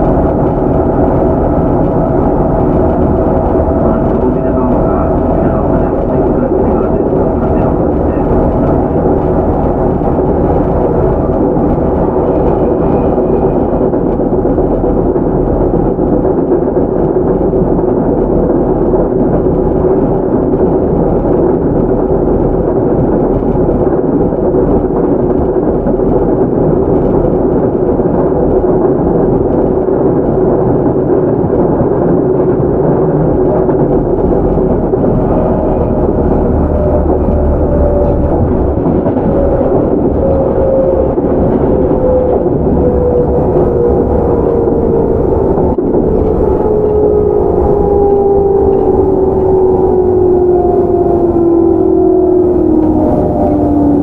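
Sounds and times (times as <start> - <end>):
traction motor whine: 0.0 - 16.2, 31.5 - 54.0
train wheels rumbling on rails: 0.0 - 54.0.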